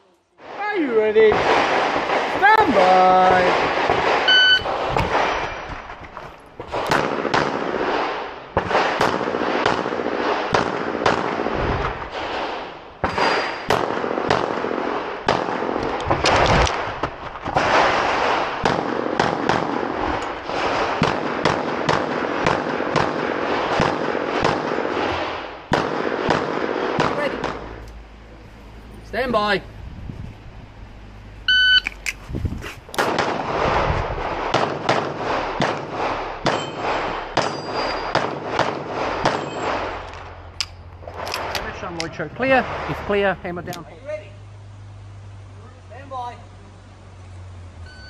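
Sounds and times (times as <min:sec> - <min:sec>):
pistol gunshots: 0:01.3 - 0:05.9, 0:06.6 - 0:27.8, 0:33.0 - 0:41.6
shot timer beep: 0:04.3 - 0:04.7, 0:31.5 - 0:31.9.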